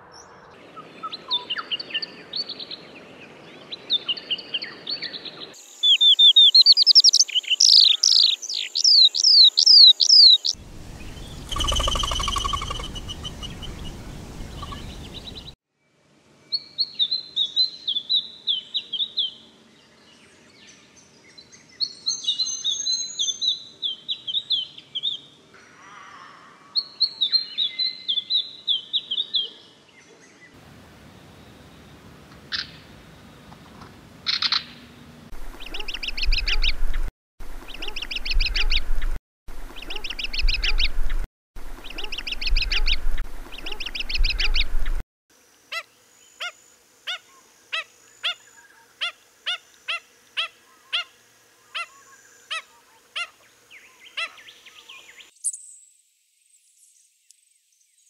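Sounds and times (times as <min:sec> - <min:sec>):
bird singing descending notes: 0:05.8 - 0:15.6
low rumbling noise: 0:10.6 - 0:15.5
bird whistling high notes: 0:11.1 - 0:13.6.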